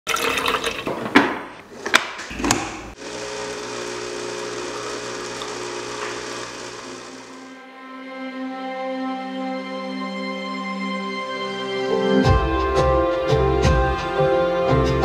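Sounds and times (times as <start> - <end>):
coffee machine pump humming: 2.3 - 7.6.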